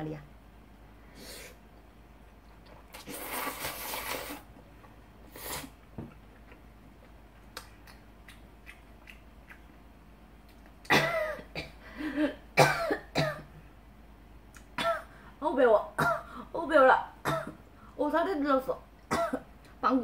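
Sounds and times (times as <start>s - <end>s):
woman slurping noodles: 2.8s - 4.5s
chewing with small clicks: 6.1s - 9.8s, 10.4s - 10.9s
woman coughing and spluttering: 10.9s - 11.8s, 12.6s - 13.5s, 16.0s - 16.3s, 17.2s - 17.6s, 19.1s - 19.5s.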